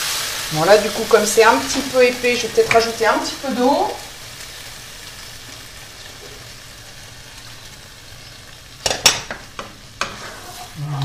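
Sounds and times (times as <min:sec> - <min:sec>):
sauce sizzling in a pan: 0:00.0 - 0:11.0
wooden spoon scraping a pan: 0:08.2 - 0:11.0.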